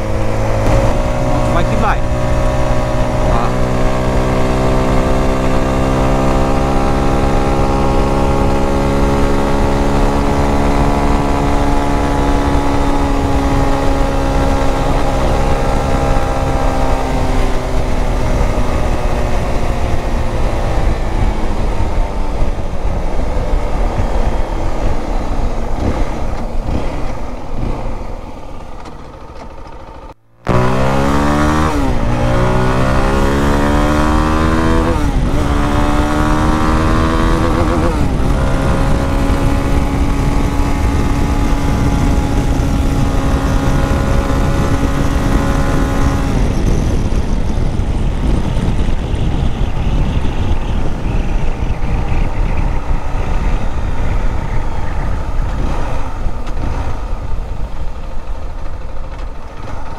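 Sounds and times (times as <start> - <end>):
wind rush: 0.0 - 28.6, 30.4 - 59.9
motorcycle engine revving: 0.0 - 59.9
motorcycle engine running: 0.0 - 59.9.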